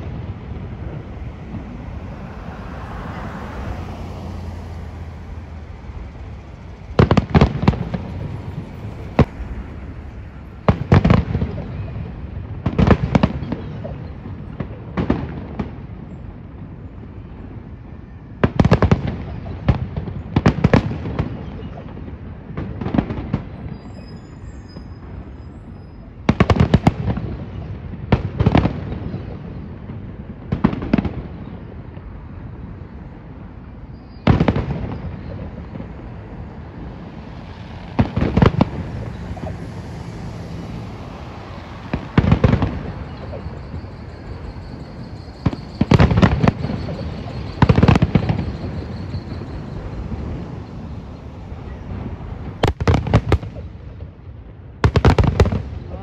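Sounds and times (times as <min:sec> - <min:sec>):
fireworks bursting: 0:00.0 - 0:56.0.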